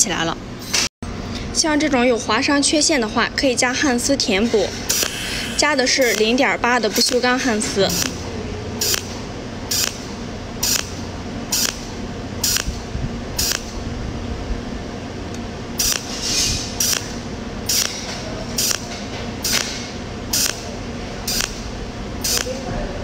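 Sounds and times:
steady low hum: 0.0s - 23.0s
welding pulse hiss: 4.9s - 6.3s, 7.9s - 8.2s, 8.8s - 9.1s, 9.7s - 12.8s, 13.4s - 13.8s, 15.8s - 18.0s, 18.6s - 20.7s, 21.3s - 22.6s.

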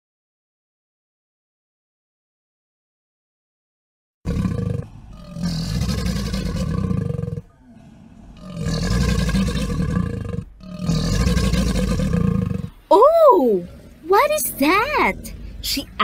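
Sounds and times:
crocodile grunting: 4.3s - 12.8s, 13.5s - 16.0s.

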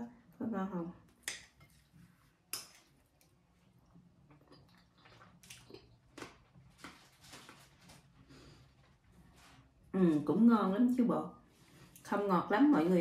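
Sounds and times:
faint chewing and mouth sounds: 1.1s - 9.8s.

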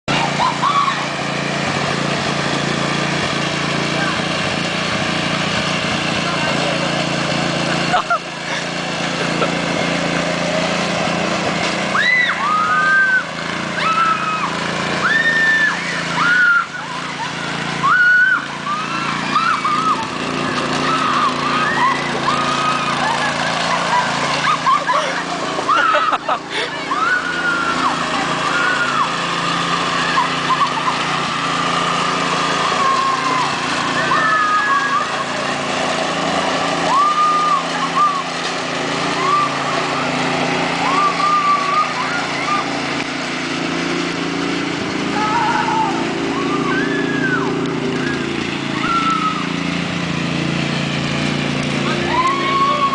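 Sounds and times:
small engine running: 0.0s - 52.9s
high-pitched voices calling out: 0.1s - 1.2s, 11.9s - 31.8s, 32.4s - 35.8s, 39.0s - 42.9s, 45.0s - 49.6s
girls squealing: 0.1s - 1.8s, 11.8s - 43.0s, 45.1s - 49.6s, 51.8s - 52.9s.

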